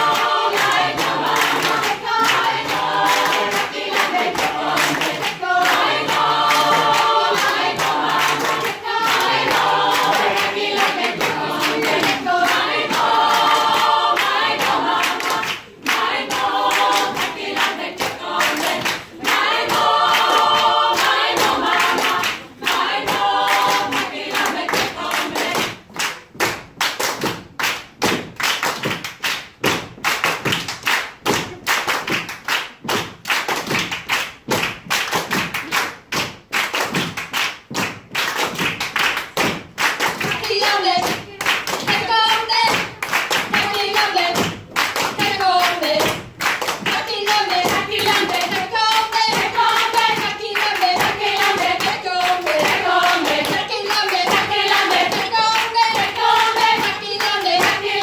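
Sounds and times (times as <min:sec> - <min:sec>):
mixed choir singing a cappella: 0:00.0 - 0:25.9, 0:40.2 - 0:58.0
rhythmic hand claps: 0:00.0 - 0:58.0.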